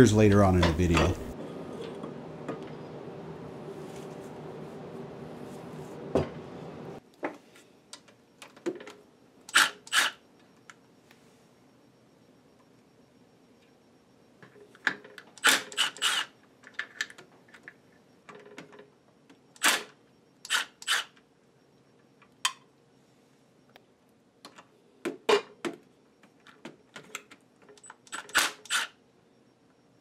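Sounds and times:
impact wrench bursts: 9.5s - 10.2s, 15.4s - 16.4s, 20.5s - 21.2s, 28.1s - 29.0s.

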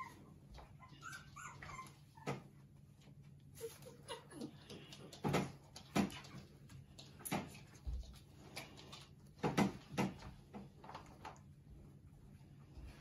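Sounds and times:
puppies yelping and whimpering: 0.0s - 2.6s.

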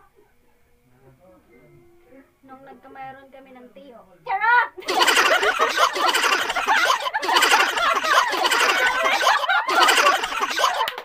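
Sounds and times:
women laughing: 4.8s - 11.0s.

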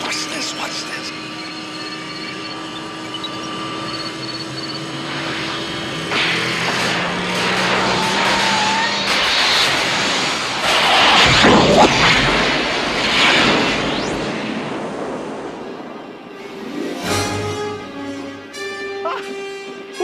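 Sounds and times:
car engine accelerating: 0.0s - 12.8s.

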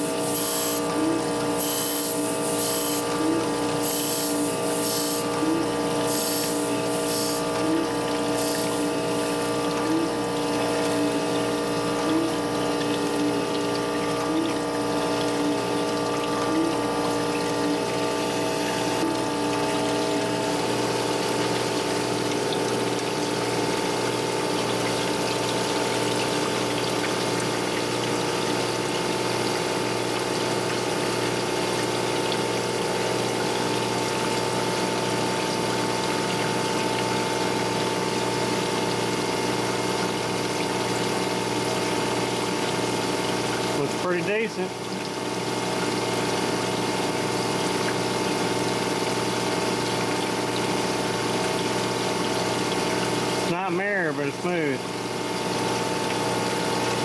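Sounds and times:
coolant hissing and splashing: 0.0s - 57.0s
grinder motor hum: 0.0s - 57.0s.

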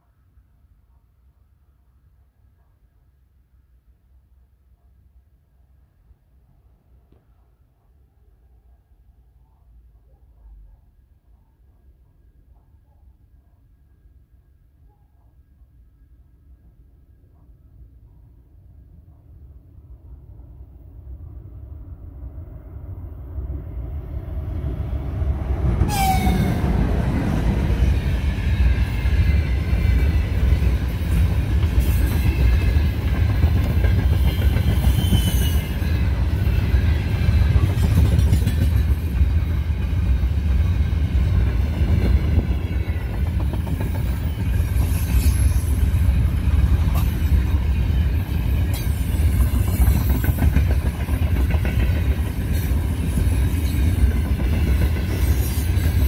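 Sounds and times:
train rumble: 18.9s - 56.0s
locomotive whine: 23.8s - 38.0s.

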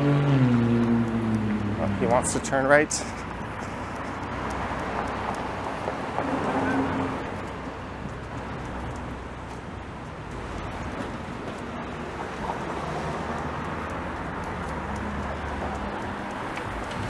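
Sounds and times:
cars passing: 0.0s - 17.0s
low engine rumble: 0.0s - 17.0s.

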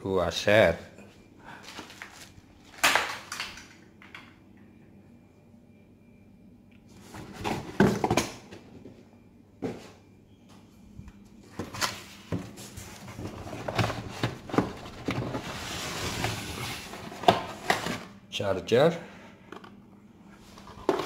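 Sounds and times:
plastic rustling and crinkling: 1.6s - 3.7s.

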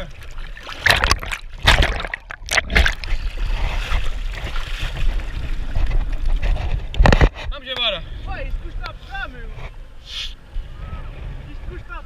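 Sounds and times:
steady wash of water: 0.0s - 7.0s
water splashing: 0.0s - 7.1s.

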